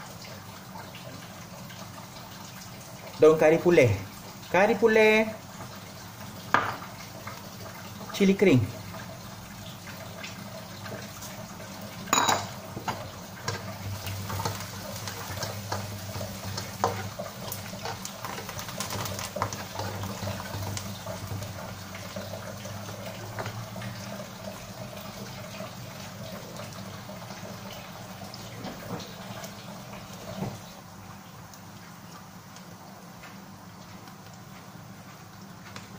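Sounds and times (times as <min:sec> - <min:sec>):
food sizzling in hot oil: 0:00.0 - 0:35.1
spatula stirring in a pan: 0:12.7 - 0:20.7.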